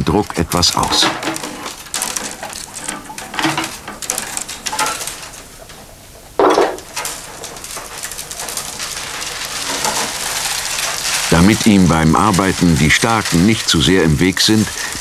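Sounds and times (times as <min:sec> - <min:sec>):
willow rods scraping and rustling: 0:00.6 - 0:06.0, 0:06.7 - 0:15.0.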